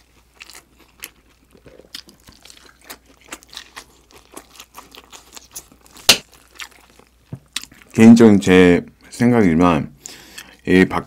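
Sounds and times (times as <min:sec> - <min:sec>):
person chewing wet smacks: 0:00.4 - 0:08.0.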